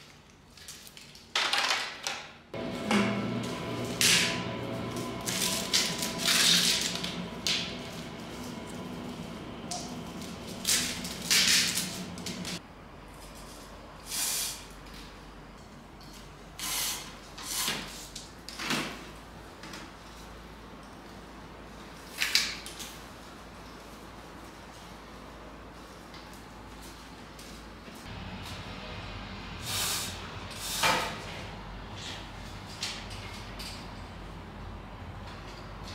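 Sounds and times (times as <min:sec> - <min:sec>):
steady background tone: 0:02.6 - 0:13.0.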